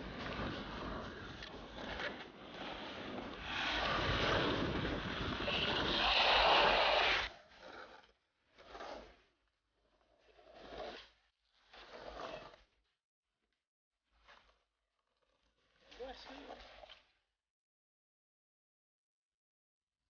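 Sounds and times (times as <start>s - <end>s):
skateboard wheels rolling on concrete: 0.0s - 9.2s, 10.3s - 11.1s.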